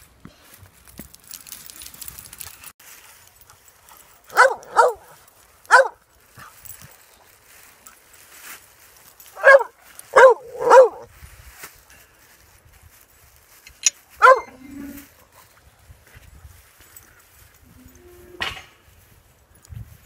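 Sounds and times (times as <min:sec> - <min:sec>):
dog barking: 0:04.3 - 0:06.0, 0:09.4 - 0:11.1, 0:14.2 - 0:14.6.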